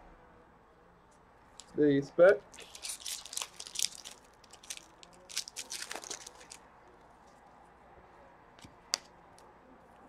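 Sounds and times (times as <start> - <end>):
plastic wrapper tearing and crinkling: 2.5 - 6.6.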